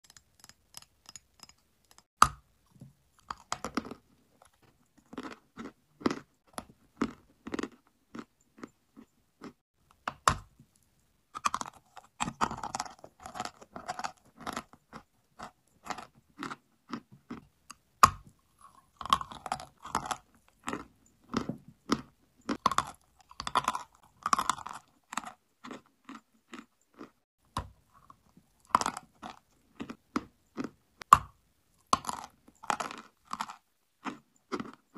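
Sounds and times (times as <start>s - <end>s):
gritty crunching of chewed chalk: 3.2s - 9.6s, 11.4s - 27.2s, 31.8s - 34.9s.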